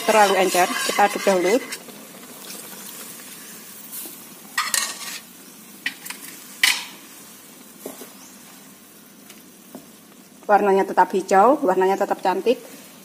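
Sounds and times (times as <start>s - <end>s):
spatula scraping metal pot: 0.0s - 1.9s, 4.6s - 5.3s
cooking pot hissing: 0.0s - 13.0s.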